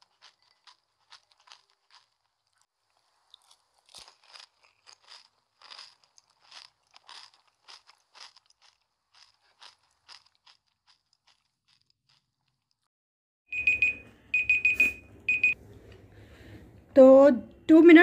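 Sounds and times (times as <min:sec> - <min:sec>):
crisp shells being bitten: 0:00.0 - 0:12.9
timer alarm beeping: 0:13.5 - 0:15.6.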